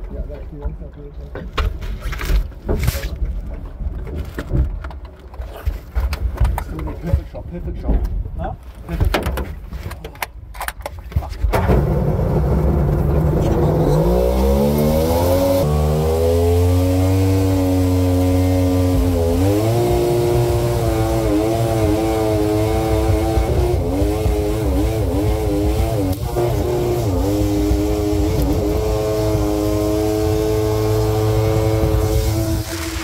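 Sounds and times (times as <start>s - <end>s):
two-stroke boat engine running hard: 13.6s - 33.0s.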